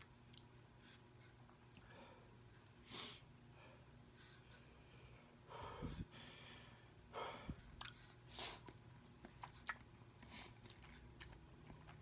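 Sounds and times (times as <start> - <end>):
person chewing: 0.0 - 2.8, 7.6 - 12.0.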